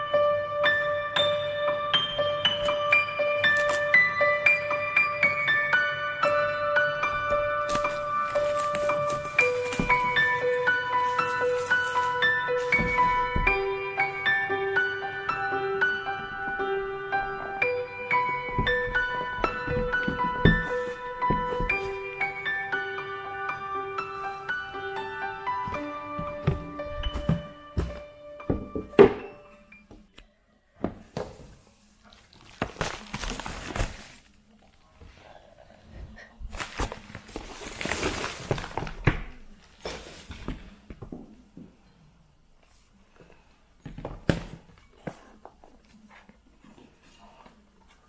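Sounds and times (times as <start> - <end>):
soft piano music: 0.0 - 30.2
paper mailer rustling and crinkling: 3.4 - 4.0, 7.6 - 13.5, 32.4 - 34.5, 36.5 - 40.7.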